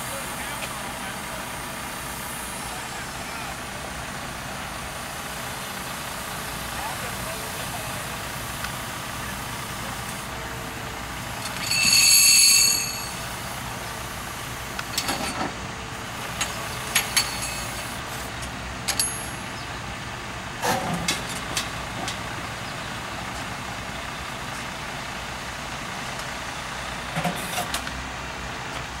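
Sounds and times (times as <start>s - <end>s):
engine running: 0.0s - 29.0s
sharp metal clanks: 11.4s - 13.3s, 16.4s - 17.9s, 18.9s - 19.4s
loud high-pitched tone: 11.6s - 13.3s.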